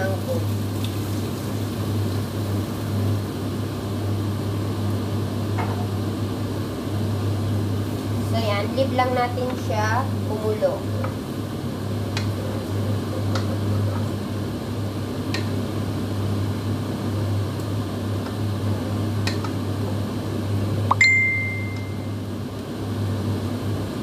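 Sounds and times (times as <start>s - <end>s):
kitchen equipment humming: 0.0s - 24.0s
short high beep: 20.9s - 22.1s.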